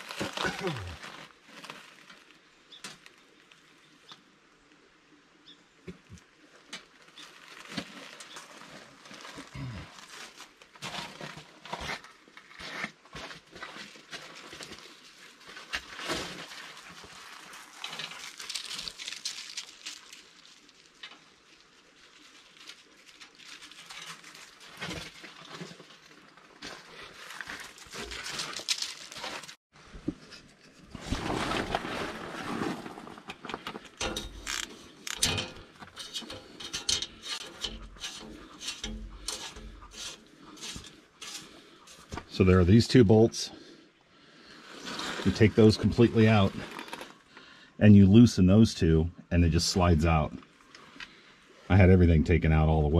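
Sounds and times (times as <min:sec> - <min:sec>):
rubbing and scraping on panels: 0:30.2 - 0:42.3
clicks and knocks: 0:34.0 - 0:40.0.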